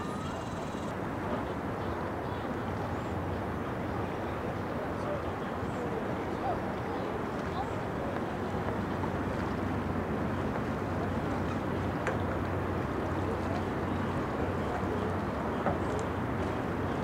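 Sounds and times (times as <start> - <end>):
distant motor hum: 0.0 - 0.9
faint chirps: 0.0 - 0.9.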